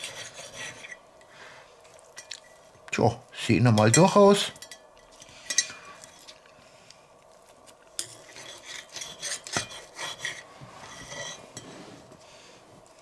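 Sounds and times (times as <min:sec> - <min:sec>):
knife scraping through crisp bacon: 0:00.0 - 0:01.0, 0:08.0 - 0:11.9
metal clinking on china: 0:03.8 - 0:05.8.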